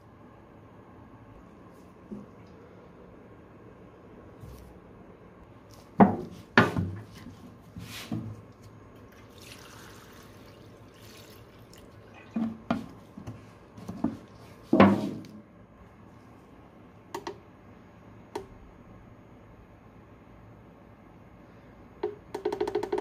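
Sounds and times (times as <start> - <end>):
liquid pouring and splashing: 8.9 - 13.1.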